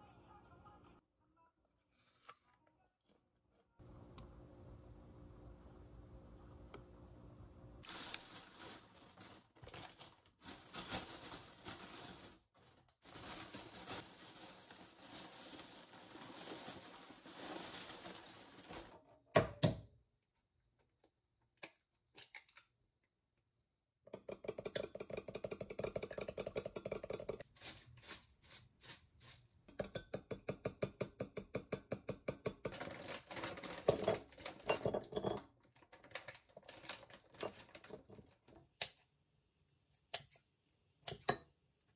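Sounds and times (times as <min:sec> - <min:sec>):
plastic bag rustling: 0:07.8 - 0:19.0, 0:27.4 - 0:29.6, 0:32.7 - 0:38.5
plastic packet crinkling: 0:07.8 - 0:19.0, 0:32.7 - 0:34.7, 0:35.6 - 0:38.5.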